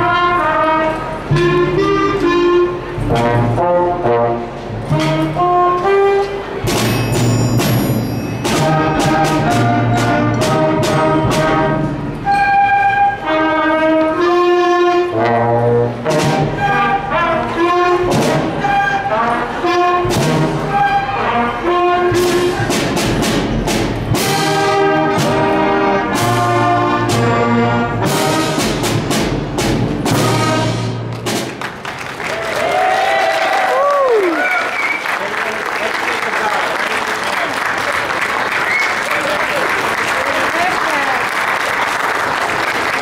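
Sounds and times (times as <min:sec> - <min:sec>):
concert band playing: 0:00.0 - 0:32.0
sharp percussion hits: 0:06.6 - 0:12.6, 0:22.0 - 0:31.7.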